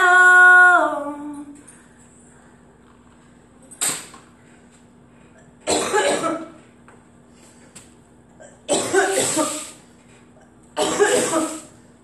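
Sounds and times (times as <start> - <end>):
woman coughing hard: 5.7 - 6.6, 8.4 - 9.8, 10.8 - 11.8.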